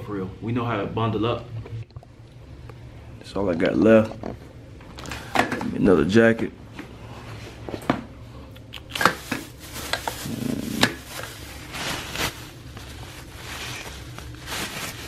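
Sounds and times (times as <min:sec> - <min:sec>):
low steady hum: 0:00.0 - 0:15.0
plastic bag crinkling: 0:08.8 - 0:15.0.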